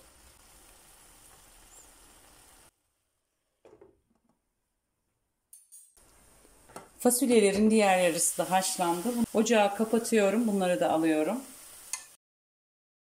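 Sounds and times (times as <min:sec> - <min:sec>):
beans simmering in a pan: 0:00.0 - 0:03.0, 0:06.0 - 0:12.2.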